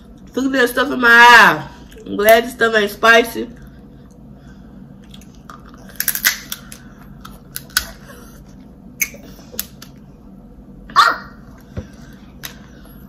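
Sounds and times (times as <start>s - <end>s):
crab shell cracking: 5.1s - 8.0s.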